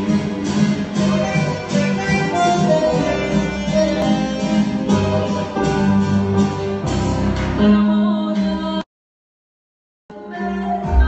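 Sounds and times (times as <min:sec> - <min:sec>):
electric guitar: 0:00.0 - 0:08.8
keyboard: 0:00.0 - 0:08.8.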